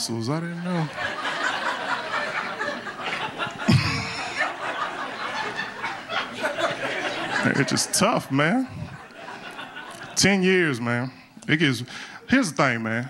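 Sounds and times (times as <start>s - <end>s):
audience laughing: 0.4s - 10.7s.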